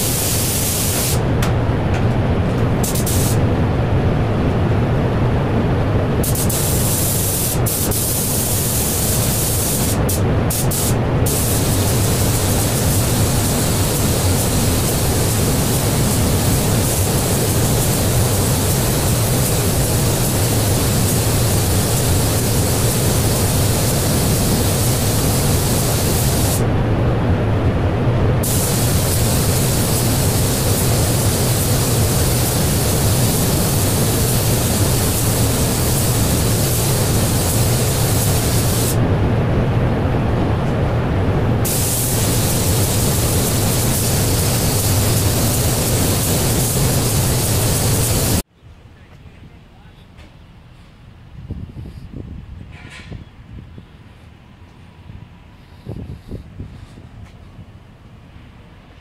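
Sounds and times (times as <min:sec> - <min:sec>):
spray gun hissing: 0:00.0 - 0:01.3, 0:02.8 - 0:03.4, 0:06.2 - 0:26.6, 0:28.4 - 0:39.0, 0:41.6 - 0:48.4
low steady hum: 0:00.0 - 0:07.6, 0:08.2 - 0:45.2.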